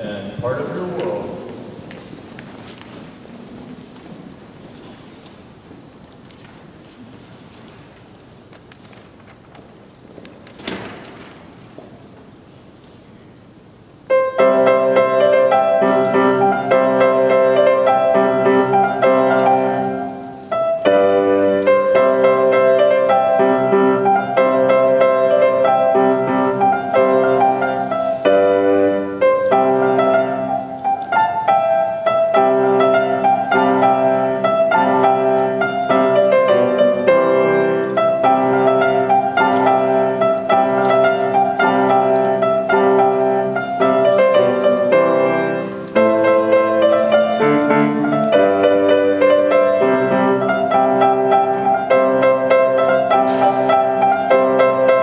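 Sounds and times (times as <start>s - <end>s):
solo piano playing: 14.0s - 55.0s.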